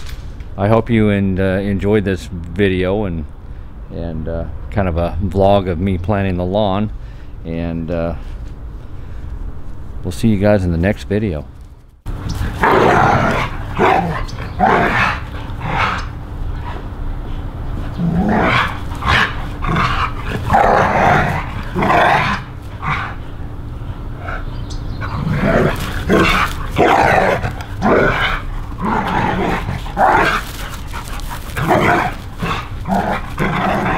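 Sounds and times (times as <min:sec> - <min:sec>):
dogs growling and barking: 0:12.1 - 0:33.9.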